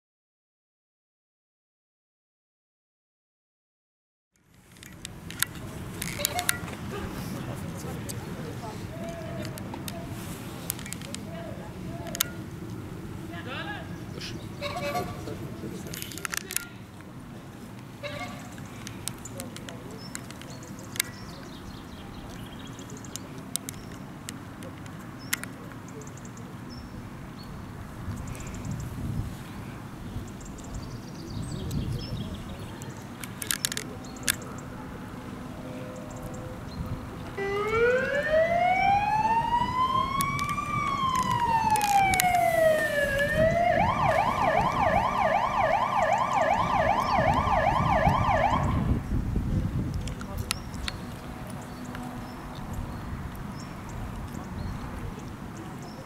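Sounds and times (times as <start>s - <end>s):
small birds chirping: 18.5s - 29.0s
sharp clicks: 33.2s - 34.5s, 40.2s - 42.5s
electronic siren wail and yelp: 37.4s - 48.9s.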